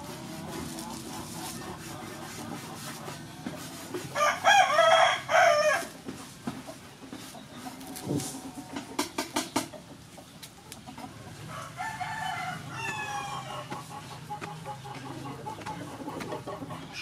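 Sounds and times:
rooster crowing: 0:04.2 - 0:05.9, 0:11.5 - 0:13.7.

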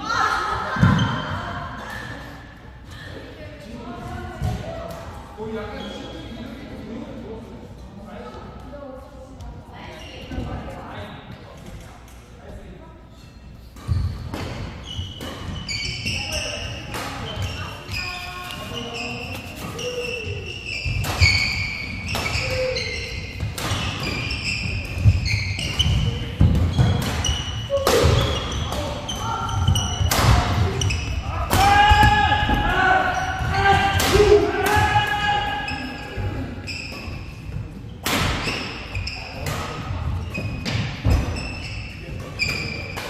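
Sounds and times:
sports shoes squeaking: 0:05.7 - 0:06.4, 0:13.1 - 0:34.0, 0:35.2 - 0:43.0
rackets hitting shuttlecock: 0:20.8 - 0:32.1, 0:38.0 - 0:38.8
racket hitting shuttlecock: 0:29.7 - 0:30.9.

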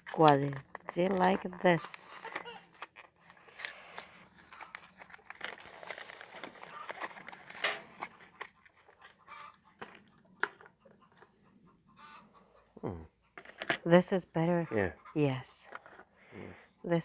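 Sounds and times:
cloth and plastic rustling: 0:00.0 - 0:09.2.

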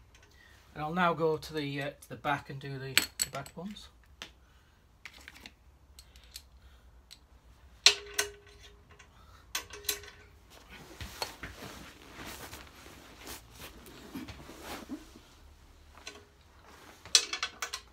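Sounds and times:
shuffling and rustling: 0:10.4 - 0:17.4.

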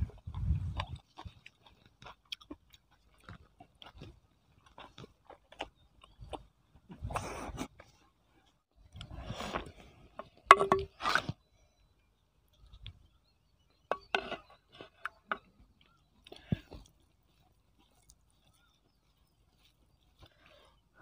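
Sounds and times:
man chewing food: 0:00.0 - 0:11.4, 0:12.5 - 0:21.0
wooden stick knocking clay pot: 0:10.5 - 0:11.0.

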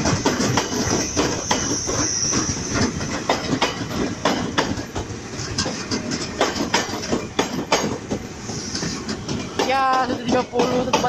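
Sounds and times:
train wheels clicking over rail joints: 0:00.0 - 0:11.0
high squeal: 0:00.9 - 0:02.8.

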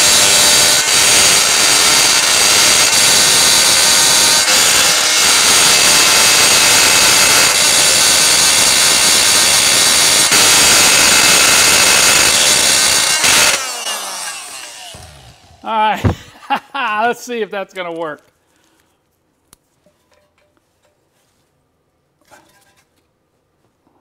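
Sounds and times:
oscillating multi-tool buzzing: 0:00.0 - 0:15.6.

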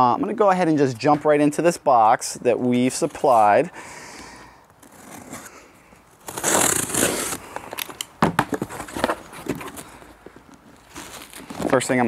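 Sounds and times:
knife slitting packing tape: 0:06.2 - 0:08.1
cardboard flaps clicking and knocking: 0:08.2 - 0:09.6.

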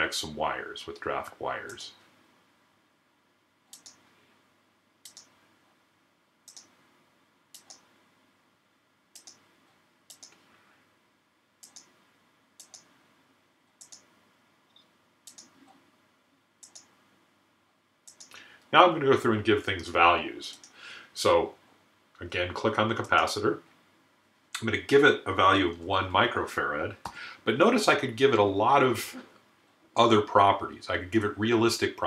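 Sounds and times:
faint room noise: 0:00.0 - 0:32.0
computer mouse clicking: 0:03.7 - 0:04.0, 0:05.0 - 0:05.4, 0:06.4 - 0:06.8, 0:07.5 - 0:07.9, 0:09.1 - 0:09.5, 0:10.1 - 0:10.4, 0:11.6 - 0:12.0, 0:12.6 - 0:12.9, 0:13.8 - 0:14.1, 0:14.7 - 0:15.8, 0:16.6 - 0:17.0, 0:18.0 - 0:18.4, 0:20.5 - 0:20.8.

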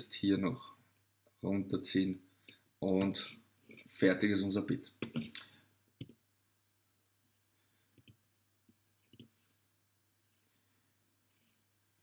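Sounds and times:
computer mouse clicks: 0:06.0 - 0:06.2, 0:08.0 - 0:09.5.

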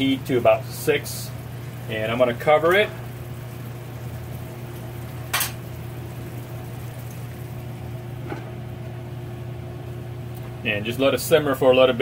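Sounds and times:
sauce simmering in a frying pan: 0:00.0 - 0:12.0.

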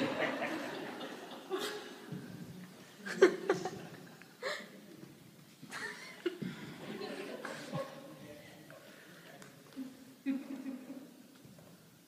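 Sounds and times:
audience laughing: 0:00.0 - 0:02.2, 0:02.9 - 0:04.7, 0:05.7 - 0:08.2.

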